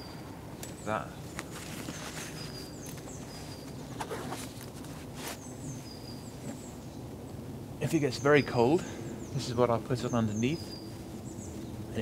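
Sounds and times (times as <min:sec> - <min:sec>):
small birds whistling: 0:00.0 - 0:04.5, 0:05.2 - 0:07.1, 0:07.9 - 0:12.0
rustling and clicks in rucksack: 0:00.6 - 0:05.5.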